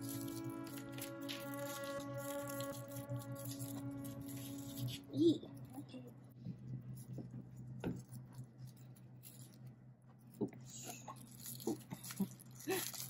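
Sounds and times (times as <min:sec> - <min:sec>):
seaweed sheets crinkling: 0:00.0 - 0:05.7, 0:10.6 - 0:13.0
steady low hum: 0:00.0 - 0:13.0.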